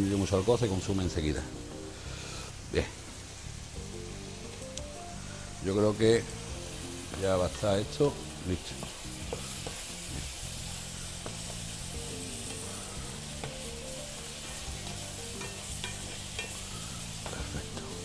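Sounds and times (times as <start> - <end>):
food sizzling in a frying pan: 0.0 - 18.0
soft background music: 0.0 - 18.0
spatula scraping a pan: 14.5 - 18.0.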